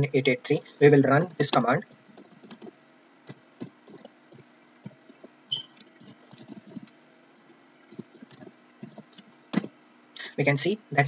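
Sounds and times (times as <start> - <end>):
high-pitched chirp: 5.5 - 5.8.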